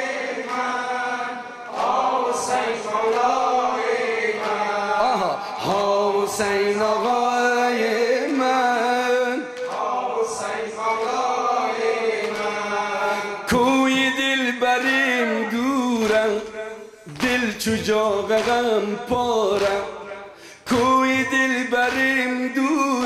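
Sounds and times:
man chanting a lament: 4.9 - 9.6, 13.0 - 23.0.

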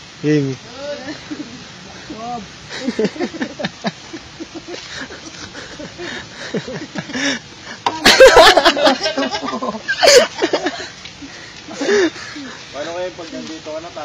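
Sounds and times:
young men talking: 0.2 - 3.7, 11.7 - 14.0
young men laughing: 0.8 - 13.3.

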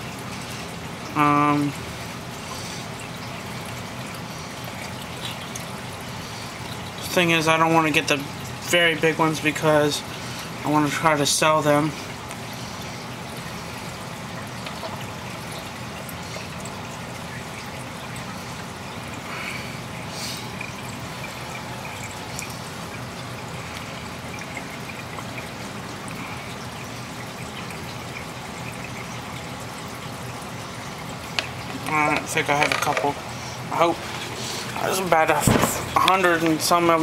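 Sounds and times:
aquarium filter water trickling: 0.0 - 37.0.

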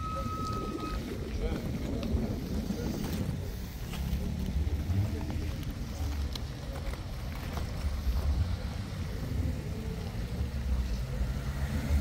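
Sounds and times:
wind buffeting microphone: 0.0 - 6.7
vehicle engine idling: 0.0 - 12.0.

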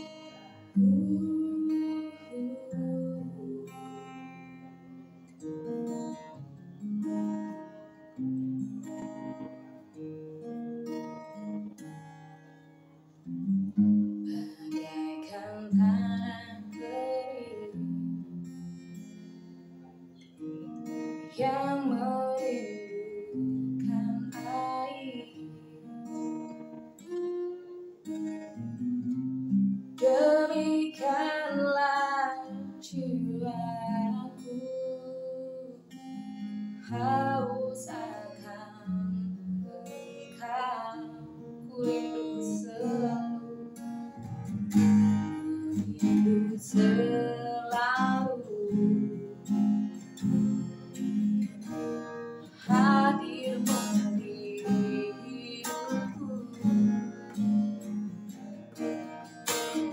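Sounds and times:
woman singing: 0.0 - 4.7, 14.2 - 18.7, 21.2 - 25.9, 30.0 - 57.6
strummed acoustic guitar: 0.0 - 59.9.

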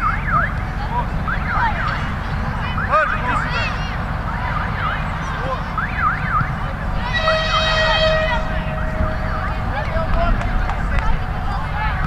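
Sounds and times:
distant shouts of young players: 2.7 - 5.7, 6.9 - 12.0
wind on microphone: 6.3 - 12.0.

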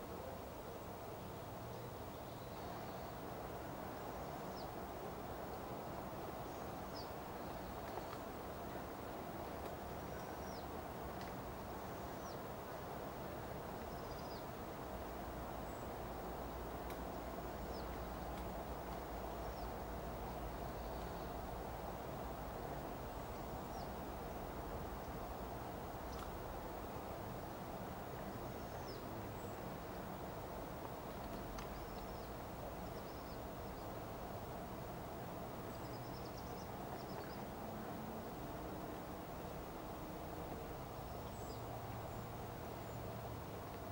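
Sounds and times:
outdoor hiss and hum: 0.0 - 43.9
small birds chirping: 5.4 - 12.6, 13.6 - 14.6, 15.2 - 21.6, 22.3 - 25.4, 28.1 - 34.6, 35.4 - 38.0, 40.9 - 43.9.

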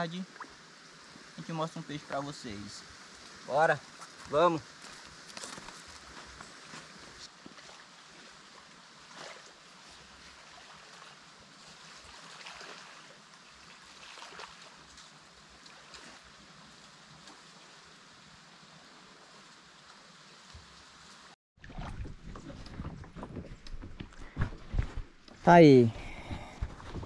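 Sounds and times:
small water splashes: 0.0 - 1.5, 7.3 - 23.1
river water washing: 0.0 - 22.6.

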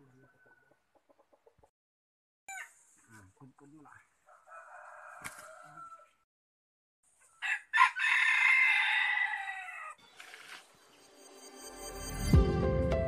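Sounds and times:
rooster crowing: 4.3 - 6.2, 7.4 - 10.0.

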